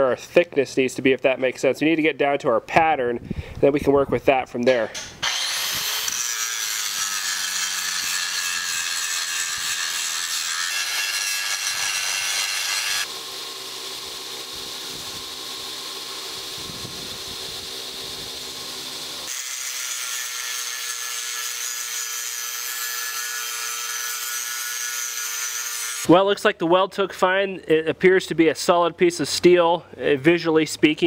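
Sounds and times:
angle grinder grinding steel: 5.0 - 26.1.

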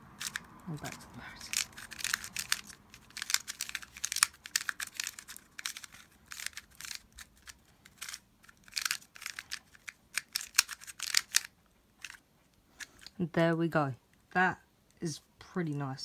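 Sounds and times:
plastic puzzle clicking: 0.2 - 12.2, 12.8 - 13.2.

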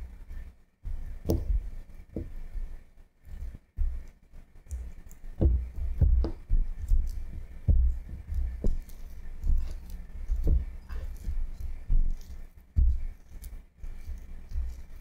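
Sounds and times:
spatula mashing butter in bowl: 3.3 - 15.0.

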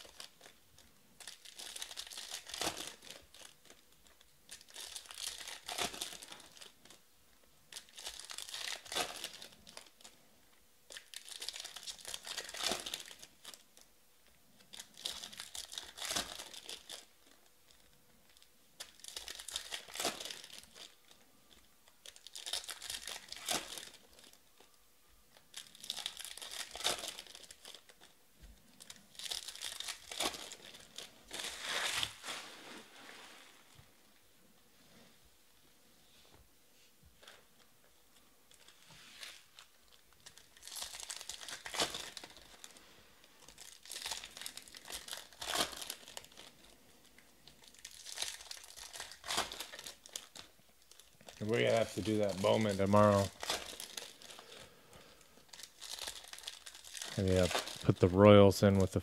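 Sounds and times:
cards rustling: 51.4 - 54.7.

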